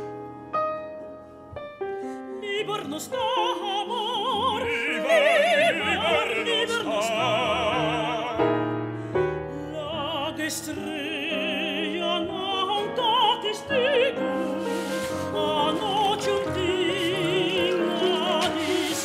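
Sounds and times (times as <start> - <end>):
piano accompaniment: 0.0 - 19.0
operatic singing with vibrato: 2.4 - 8.4, 9.8 - 19.0.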